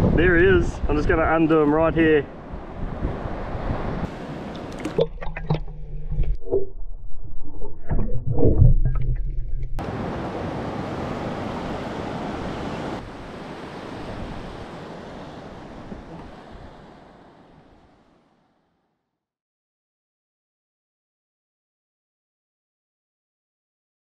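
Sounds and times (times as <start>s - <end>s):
wind and surf: 0.0s - 5.6s, 9.5s - 18.6s
water splashing and sloshing: 2.5s - 18.0s.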